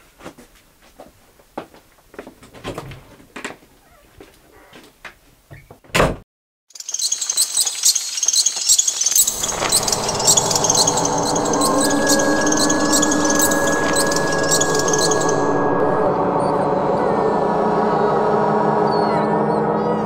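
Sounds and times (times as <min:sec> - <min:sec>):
door shutting: 0:05.6 - 0:06.2
night insects chirring: 0:06.7 - 0:16.1
sustained music chord: 0:09.2 - 0:20.0.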